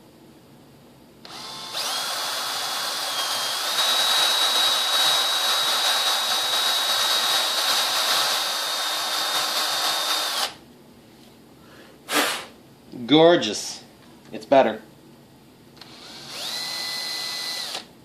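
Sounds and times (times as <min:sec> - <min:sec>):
cordless drill whining: 0:01.2 - 0:10.6, 0:15.8 - 0:17.9.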